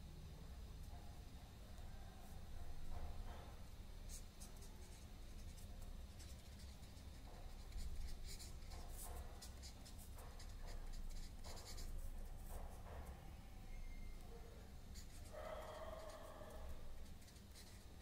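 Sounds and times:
marker pen scratching on paper: 4.1 - 13.2, 14.9 - 18.0.

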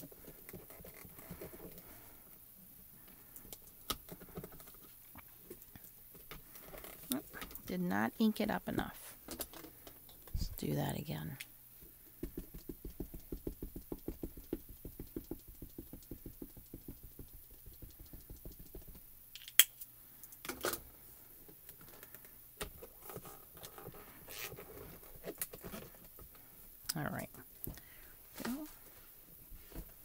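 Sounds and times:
ink pad tapping on stamp: 12.2 - 19.0.

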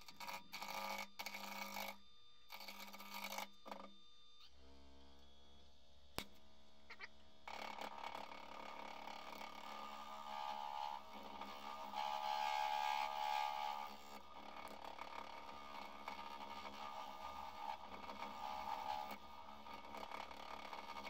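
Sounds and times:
lathe gouge scraping hiss: 10.3 - 14.0.

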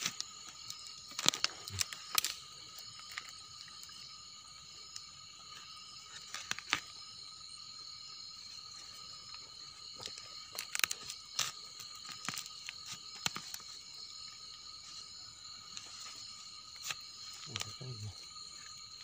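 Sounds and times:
hands handling twigs clicking: 0.0 - 2.4, 6.2 - 6.8, 10.0 - 13.7, 16.8 - 17.8
night insects chorus: 0.0 - 19.0.

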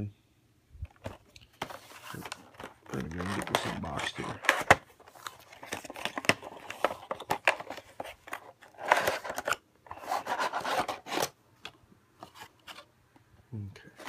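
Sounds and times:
plastic tray scraping and rustling: 0.9 - 11.4.

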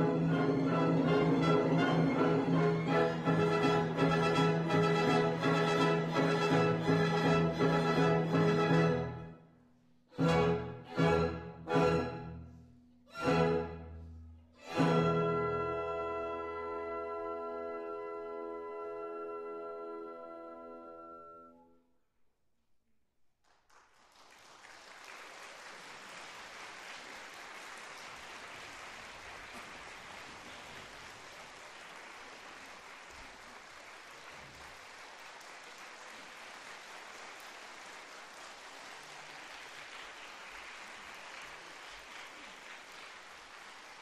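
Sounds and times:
audience applauding: 23.4 - 44.0.

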